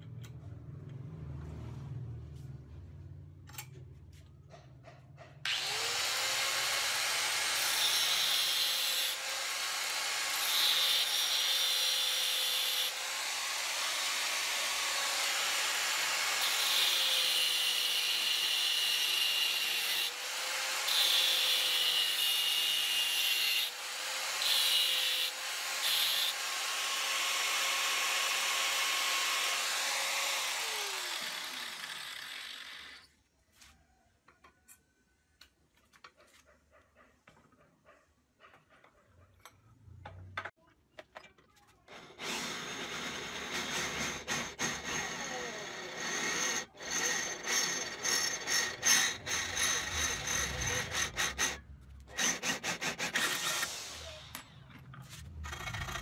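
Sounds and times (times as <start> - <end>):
grinder spinning down: 5.5 - 18.6, 24.4 - 33.1, 42.1 - 54.4
angle grinder whining: 5.5 - 33.1, 41.9 - 54.5
grinder disc screeching on metal: 41.9 - 56.0.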